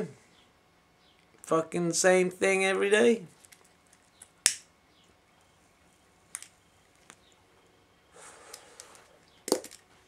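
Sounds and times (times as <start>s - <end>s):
breathy draw of smoke: 8.1s - 9.1s.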